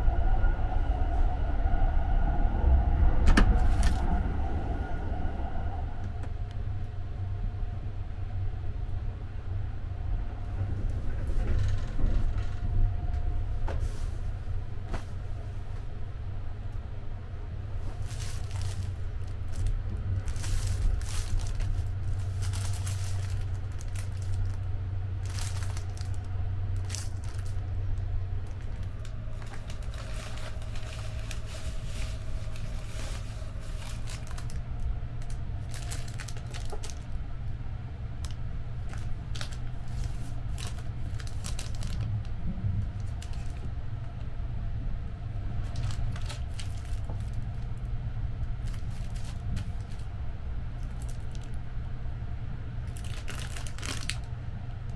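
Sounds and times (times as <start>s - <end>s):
train running low rumble: 0.0s - 54.9s
plastic wrappers crinkling: 17.8s - 37.2s, 38.2s - 42.2s, 42.8s - 43.7s, 45.6s - 47.6s, 48.6s - 50.1s, 50.8s - 51.6s, 52.8s - 54.3s.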